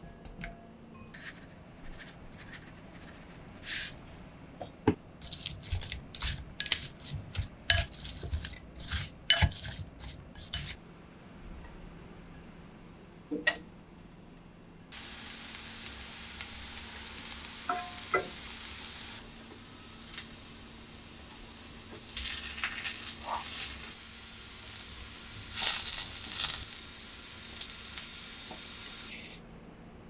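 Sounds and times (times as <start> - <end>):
vegetables sizzling in a frying pan: 14.9 - 29.3.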